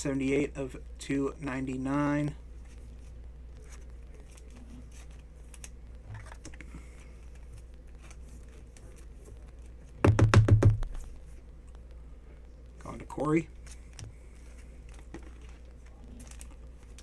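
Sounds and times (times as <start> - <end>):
plastic sleeve rustling and clicking: 2.6 - 10.0, 13.6 - 17.0.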